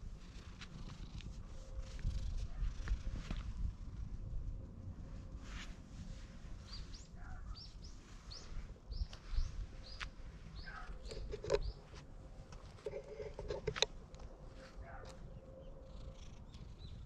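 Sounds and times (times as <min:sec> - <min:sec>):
small bird chirping: 0:06.6 - 0:11.9, 0:15.3 - 0:17.0.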